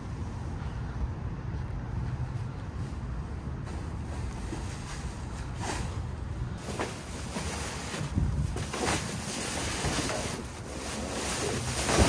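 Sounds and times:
wind rumble on microphone: 0.0 - 10.5
plastic bags and cardboard rustling: 3.6 - 12.0.

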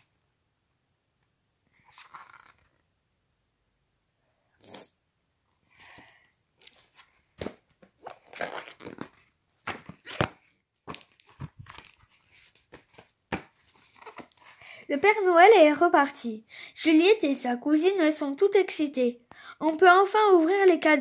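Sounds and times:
paper rustling: 6.6 - 14.6.

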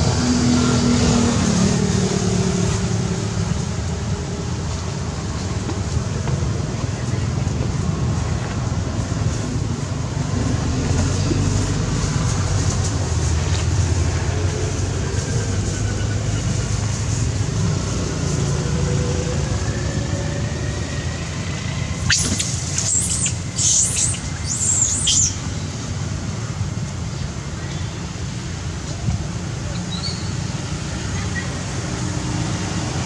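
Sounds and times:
monkey squealing: 22.0 - 25.4.

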